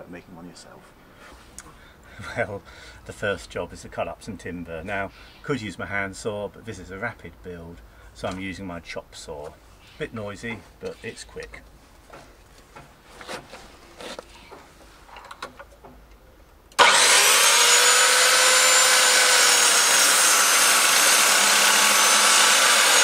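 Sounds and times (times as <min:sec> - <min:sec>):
chop saw cutting wood: 0:16.8 - 0:23.0.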